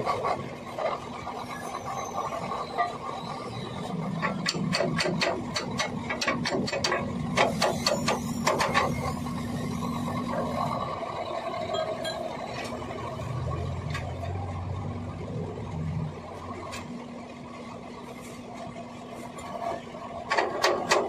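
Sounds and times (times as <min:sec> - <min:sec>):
low engine hum: 0:05.4 - 0:20.4.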